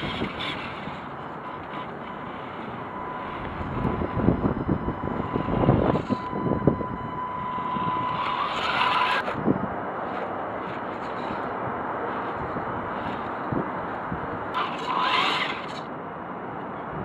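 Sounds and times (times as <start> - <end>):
toy truck electric motor whining: 0.0 - 9.4, 14.5 - 15.9.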